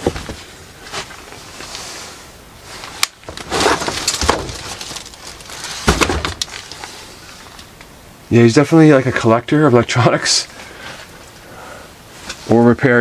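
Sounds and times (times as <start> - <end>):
crunching rustling knocks: 3.2 - 7.6.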